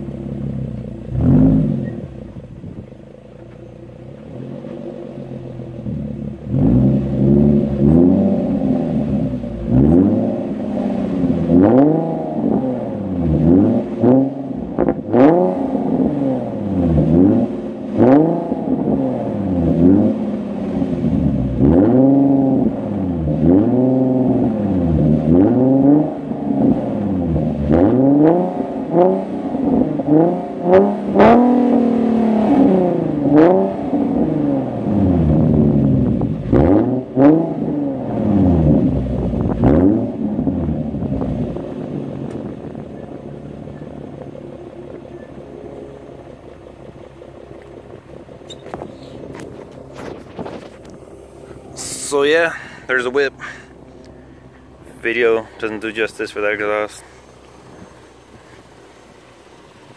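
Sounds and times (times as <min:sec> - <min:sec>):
car engine revving: 0:00.0 - 0:59.9
exhaust cracks: 0:00.0 - 0:59.9.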